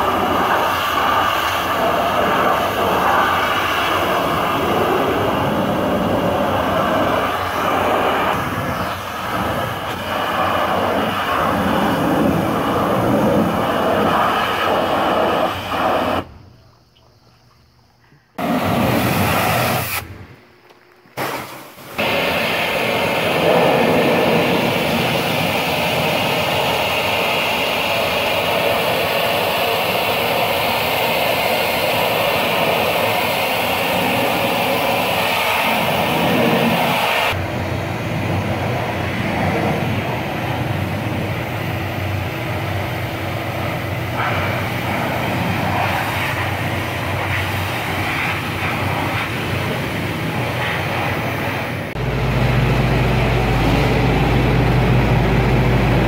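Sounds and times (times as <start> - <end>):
pressure washer spraying: 0.0 - 16.3, 18.4 - 20.1, 21.2 - 37.4
low mechanical hum: 46.5 - 56.0.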